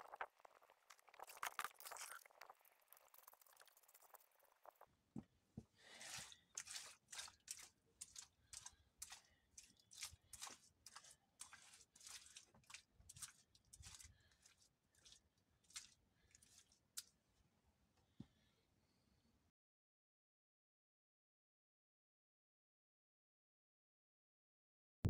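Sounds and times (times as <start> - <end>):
faint scraping strokes: 5.8 - 17.1.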